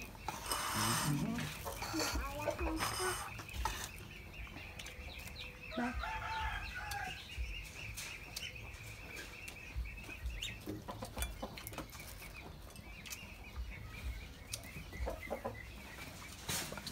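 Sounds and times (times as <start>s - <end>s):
small birds chirping: 0.0s - 16.9s
clicks and taps from eating: 9.4s - 13.6s.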